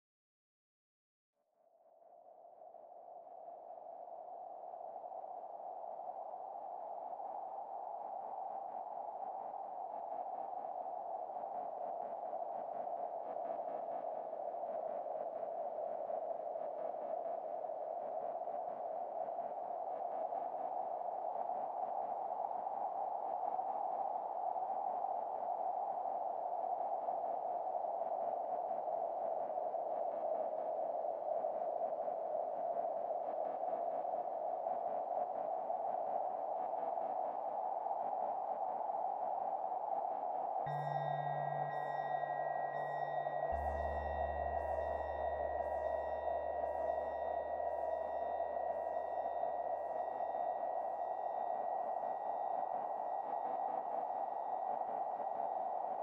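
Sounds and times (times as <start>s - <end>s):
hissy ambient drone: 40.7s - 55.9s.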